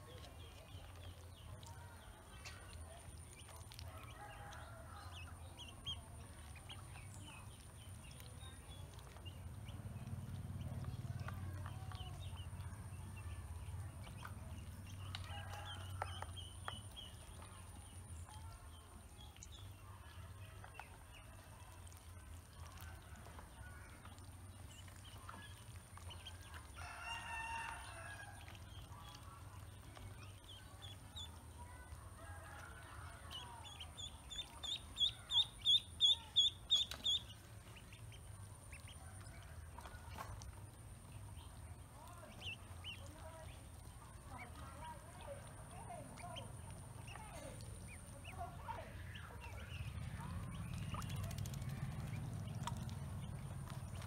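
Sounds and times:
chicks peeping: 0.0s - 54.0s.

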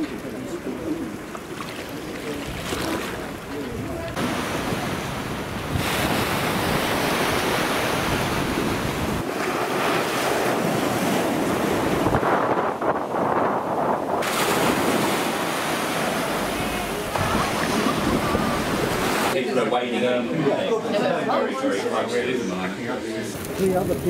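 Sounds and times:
small waves breaking on beach: 0.0s - 12.6s, 14.2s - 19.4s
wind rumbling on microphone: 2.3s - 19.4s, 23.4s - 24.0s.

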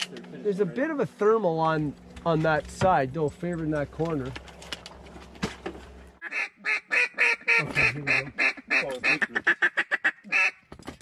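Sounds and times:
duck call quacks: 6.2s - 10.6s.

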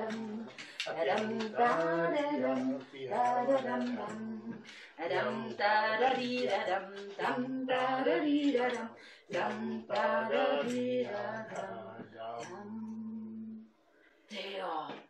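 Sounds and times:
woman singing unaccompanied: 0.0s - 13.6s.

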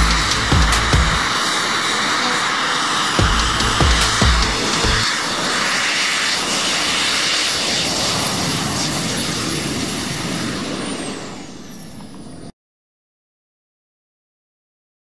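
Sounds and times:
deep thumps: 0.0s - 1.3s, 3.2s - 5.0s
propellers rushing drone: 0.0s - 12.5s.

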